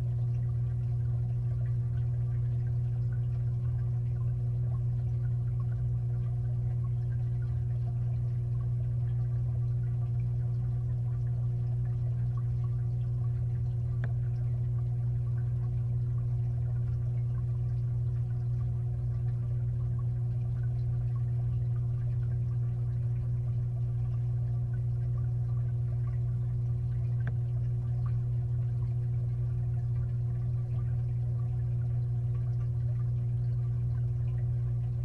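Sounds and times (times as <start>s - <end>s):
filter pump humming underwater: 0.0s - 35.0s
faint ticks: 13.3s - 14.8s, 26.9s - 28.2s.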